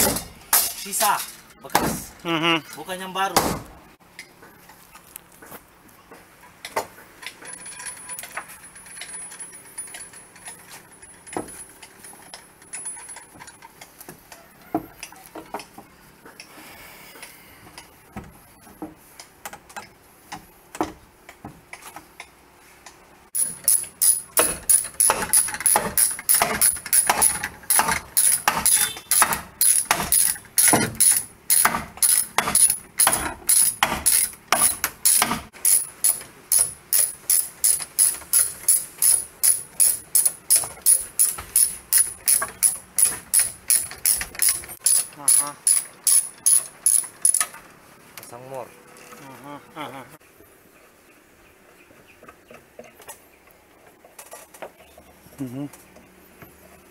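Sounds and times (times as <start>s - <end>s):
ratcheting hand drill clicks: 23.4s - 47.6s.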